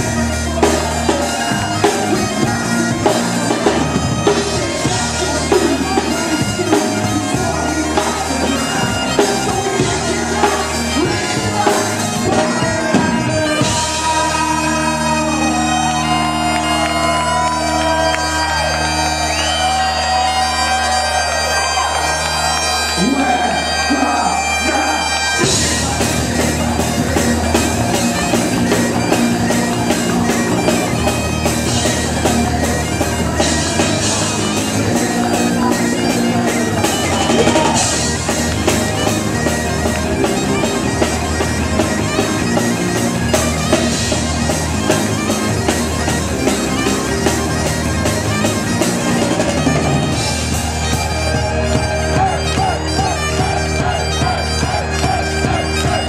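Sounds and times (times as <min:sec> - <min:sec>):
rock drum kit: 0:00.0 - 0:19.6, 0:25.4 - 0:56.0
bagpipes playing a tune: 0:00.0 - 0:56.0
rock band playing live: 0:00.0 - 0:56.0.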